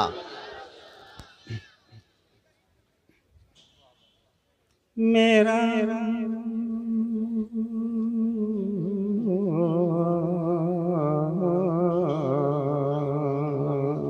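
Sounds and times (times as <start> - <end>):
elderly man singing unaccompanied: 5.0 - 14.0.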